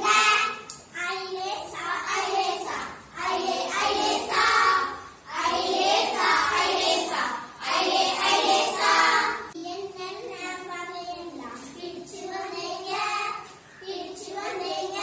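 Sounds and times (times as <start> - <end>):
children singing together: 0.0 - 9.6, 11.6 - 15.0.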